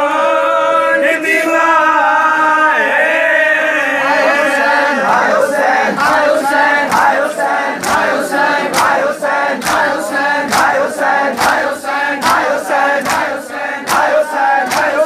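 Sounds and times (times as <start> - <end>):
group chanting lament: 0.0 - 15.0
chest-beating slaps: 6.0 - 15.0.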